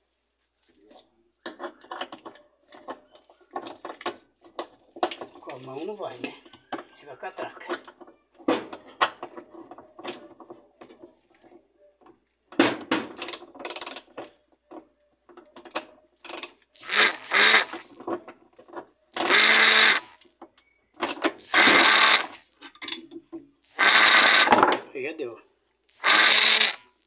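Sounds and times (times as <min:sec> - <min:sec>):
ratchet wrench clicking: 0:16.2 - 0:17.8, 0:19.2 - 0:20.1, 0:21.4 - 0:22.5, 0:23.7 - 0:24.5, 0:25.9 - 0:26.8.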